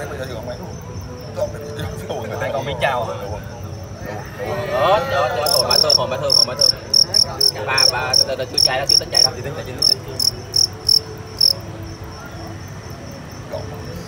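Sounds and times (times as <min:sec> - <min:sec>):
cricket chirping: 0:00.0 - 0:14.0.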